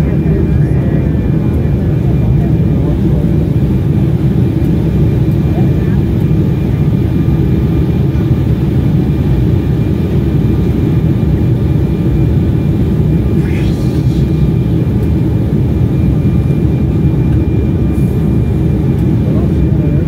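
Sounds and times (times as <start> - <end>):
jet cabin roar: 0.0 - 20.0
faint high hum: 10.0 - 20.0.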